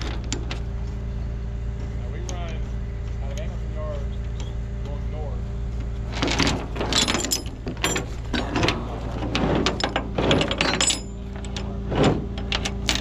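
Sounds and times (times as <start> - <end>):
steady low hum: 0.0 - 13.0
metal chain clinking: 6.1 - 11.7, 12.4 - 13.0.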